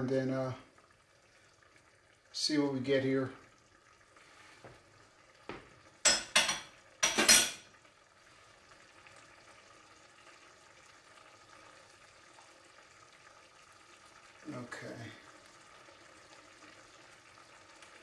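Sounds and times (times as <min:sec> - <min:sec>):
stew bubbling in a pot: 0:00.0 - 0:18.0
metallic clatter of kitchenware: 0:06.0 - 0:07.7.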